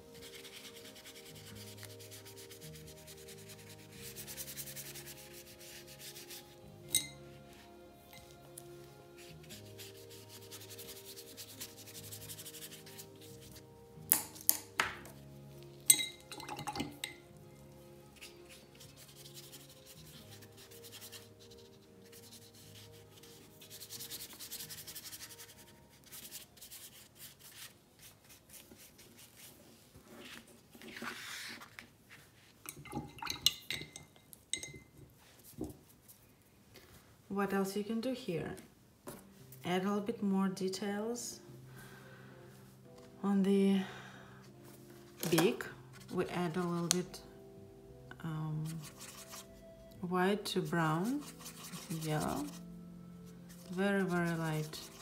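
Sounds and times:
paintbrush scrubbing on paper: 0.0s - 6.7s, 8.6s - 13.7s, 18.0s - 32.5s, 48.6s - 49.7s, 50.7s - 55.0s
soft background music: 0.0s - 55.0s.

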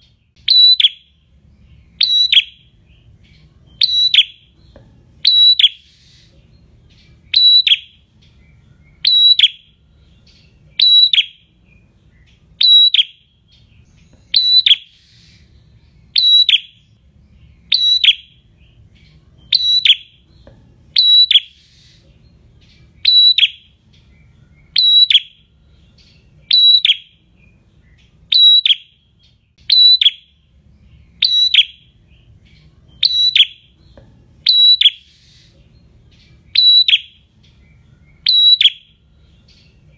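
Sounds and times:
bird calling sharp high notes: 0.4s - 1.1s.

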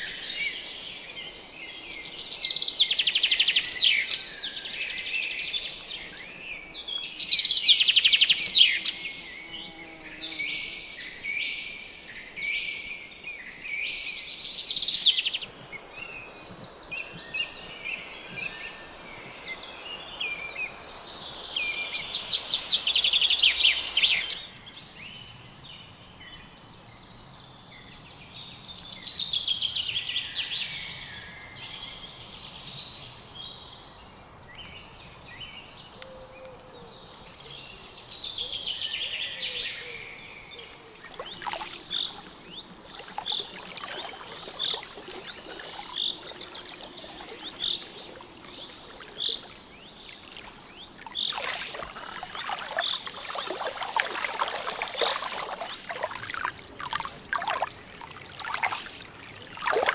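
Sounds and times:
birds chirping faintly: 30.6s - 59.9s
songbird trilling: 41.0s - 57.8s.

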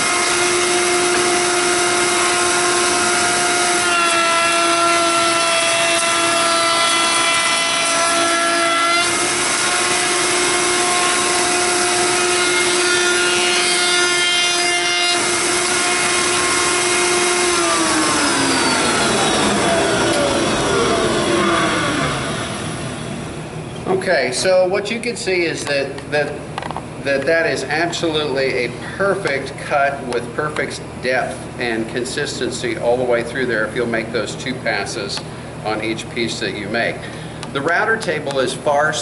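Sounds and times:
wood router whining: 0.0s - 23.6s.

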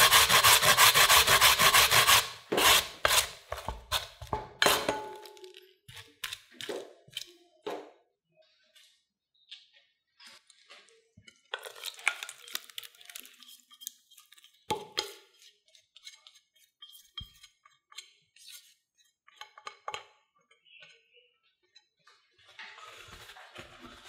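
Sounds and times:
spatula scraping glass bowl: 0.0s - 5.0s.

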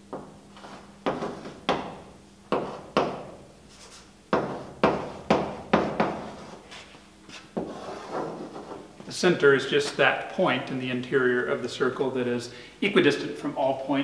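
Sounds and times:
chalk tapping and scraping: 0.2s - 8.9s.

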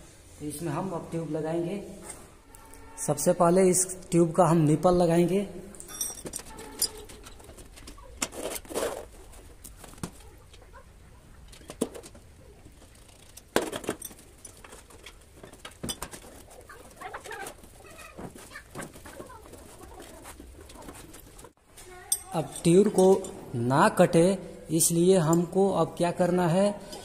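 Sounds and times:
rubber rubbing and rustling: 6.4s - 10.6s, 11.7s - 21.6s.

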